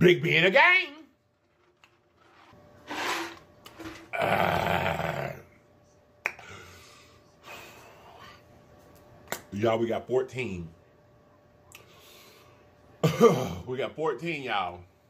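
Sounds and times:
man breathing: 0:06.4 - 0:08.5.

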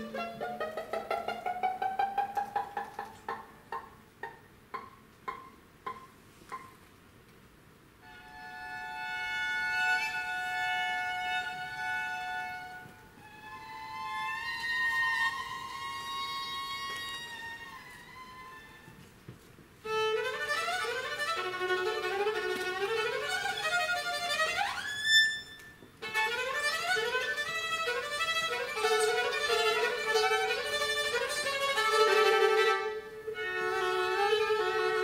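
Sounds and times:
bowed viola double stops: 0:00.0 - 0:01.1, 0:19.9 - 0:35.0
plucked viola notes: 0:00.0 - 0:02.3, 0:19.9 - 0:35.0.

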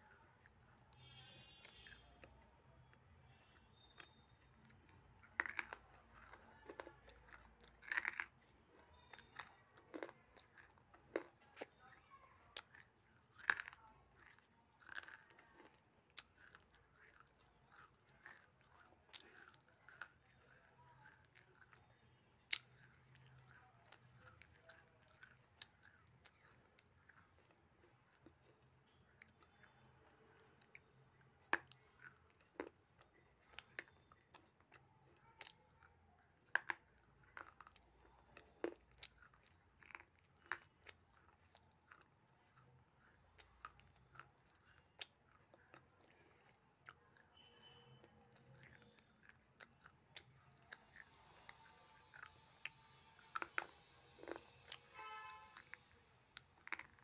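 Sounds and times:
person chewing: 0:00.0 - 0:57.0
crunching clay: 0:03.4 - 0:11.8, 0:12.5 - 0:21.8.

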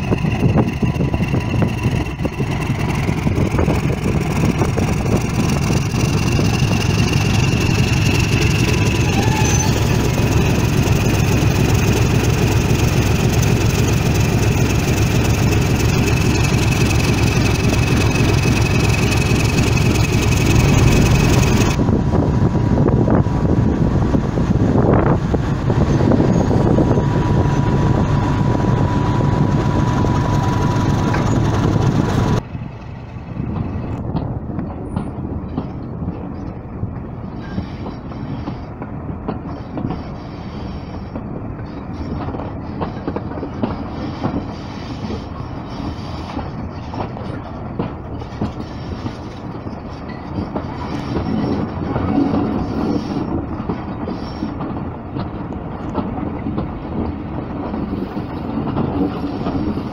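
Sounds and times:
wheels clicking over rail joints: 0:00.0 - 0:21.8, 0:29.4 - 0:40.2, 0:40.8 - 0:59.9
diesel locomotive idling: 0:00.0 - 0:35.9.

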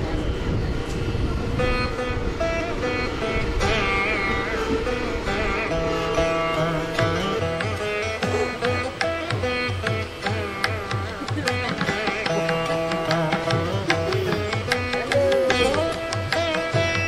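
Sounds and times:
plucked-string melody: 0:00.8 - 0:17.0
hand-drum beat: 0:06.9 - 0:17.0.

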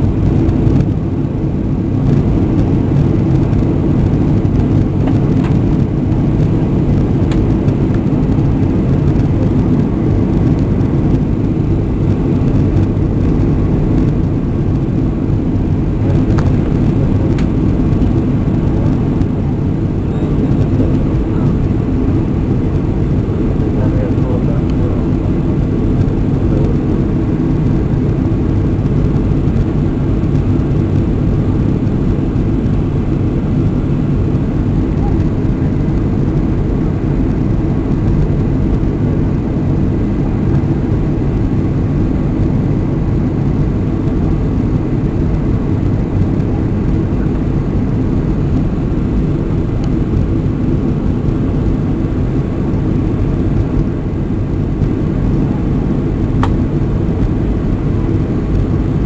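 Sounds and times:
jet cabin engine drone: 0:00.0 - 0:59.0.

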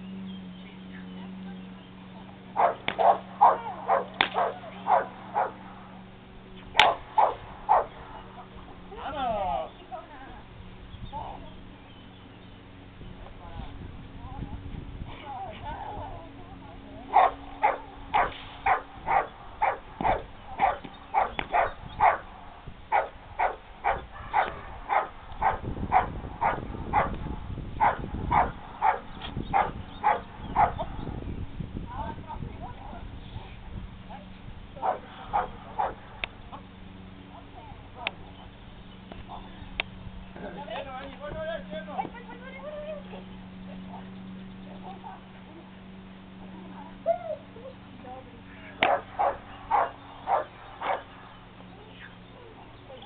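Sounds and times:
dog barking: 0:02.6 - 0:05.9, 0:06.8 - 0:08.2, 0:17.1 - 0:22.3, 0:22.9 - 0:27.2, 0:27.8 - 0:30.9, 0:34.8 - 0:36.0, 0:48.8 - 0:51.2.

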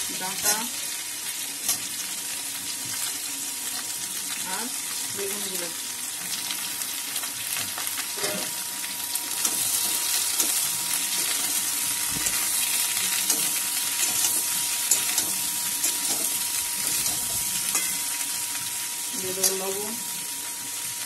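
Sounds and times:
vegetables sizzling in oil: 0:00.0 - 0:21.0
steel spatula scraping a wok: 0:12.2 - 0:18.2.

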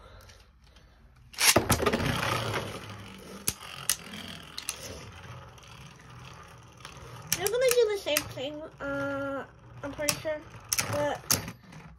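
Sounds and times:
spinning tops whirring and scraping: 0:01.2 - 0:11.9
spinning tops clacking: 0:01.4 - 0:08.7.

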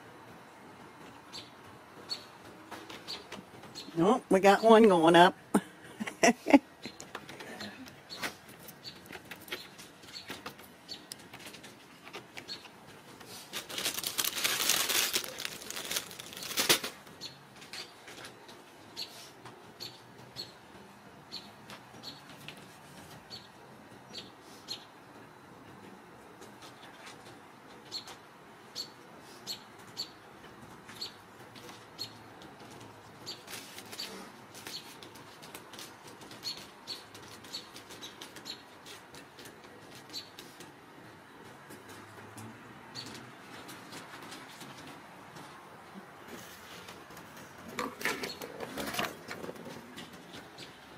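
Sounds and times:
small bird chirping: 0:01.3 - 0:02.3.

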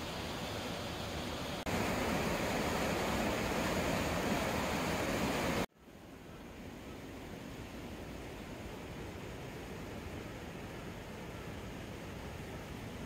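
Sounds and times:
stream rushing: 0:00.0 - 0:06.0.

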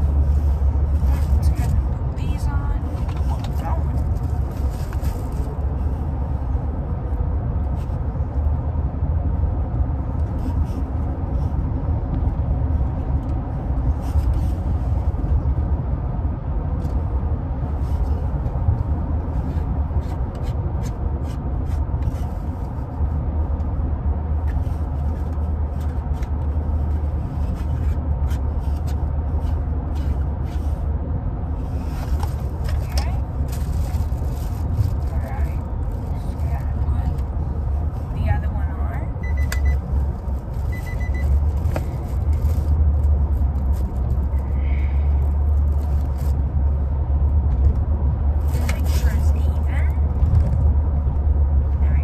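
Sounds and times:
car road and engine rumble: 0:00.0 - 0:52.0
plastic and cardboard handled: 0:31.7 - 0:38.0.

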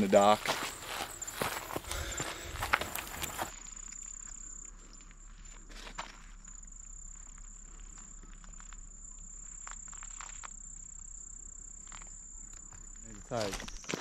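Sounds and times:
insect chorus trilling: 0:00.0 - 0:14.0
faint ticks: 0:02.7 - 0:13.9.

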